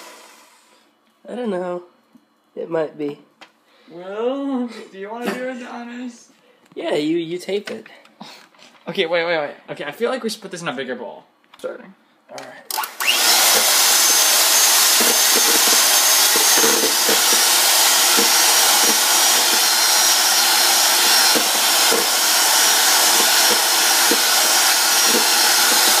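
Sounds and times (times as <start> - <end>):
electric hand mixer running: 0.0 - 0.6, 12.7 - 26.0
beaters knocking on bowl: 14.6 - 26.0.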